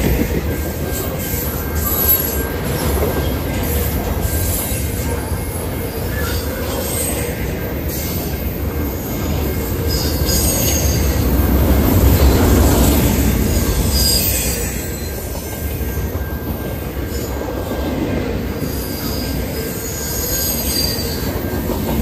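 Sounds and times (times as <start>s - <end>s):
train wheels rumbling on rail: 0.0s - 22.0s
high-pitched wheel squeals: 5.9s - 11.2s, 12.0s - 17.6s, 18.6s - 22.0s.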